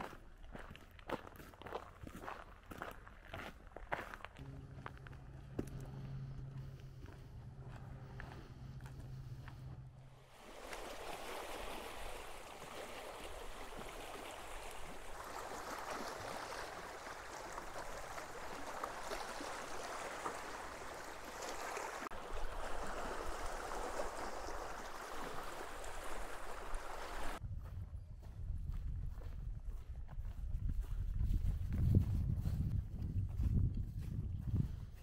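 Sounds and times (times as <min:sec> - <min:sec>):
waves splashing over rocks: 0:10.3 - 0:27.4.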